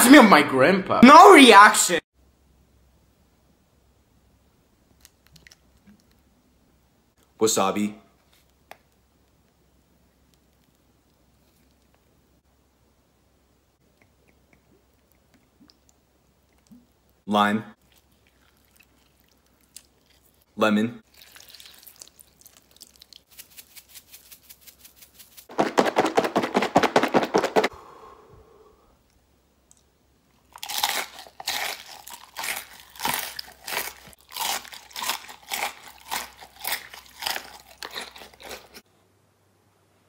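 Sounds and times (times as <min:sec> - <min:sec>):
wet food squishing: 0:17.8 - 0:24.8, 0:29.6 - 0:38.8
food squelches and smacks: 0:17.8 - 0:25.0, 0:29.6 - 0:38.8.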